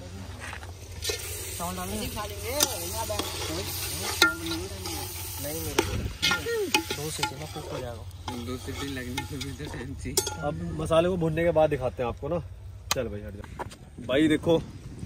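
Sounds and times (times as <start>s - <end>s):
food sizzling in oil: 0.7s - 11.9s.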